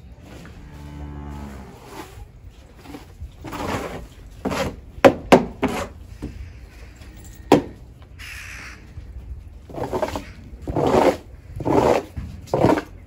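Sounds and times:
rustling noises: 0.0 - 13.0.

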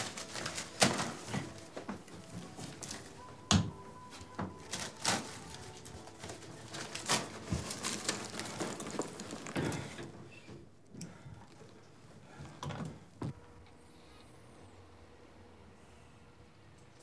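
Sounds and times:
leather bag rustling: 0.0 - 3.2, 4.6 - 10.0
items knocking and clicking: 0.0 - 10.1.

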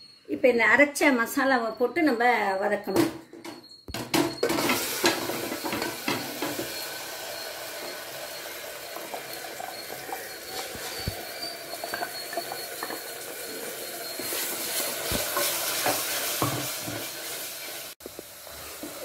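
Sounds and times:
paste sizzling in hot oil: 4.5 - 19.0.

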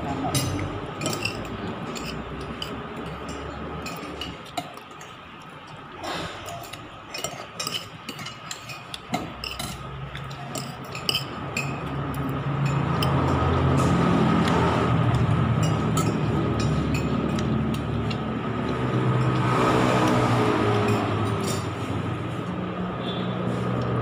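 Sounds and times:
plate and cutlery clinks: 0.2 - 5.1, 6.4 - 11.9, 15.6 - 17.6.

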